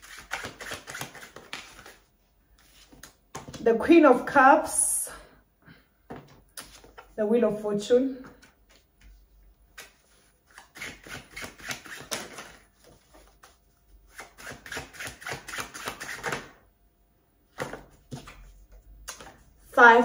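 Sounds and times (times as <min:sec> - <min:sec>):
cards being shuffled: 0:00.0 - 0:03.6, 0:06.2 - 0:07.2, 0:08.3 - 0:16.5, 0:17.6 - 0:19.5.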